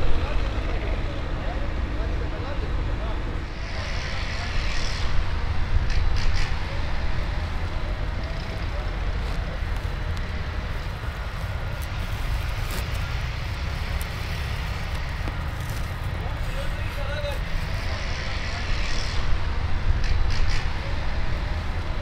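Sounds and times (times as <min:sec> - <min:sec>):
low rumbling outdoor noise: 0:00.0 - 0:22.0
tarpaulin clicks and rustles: 0:10.8 - 0:17.1.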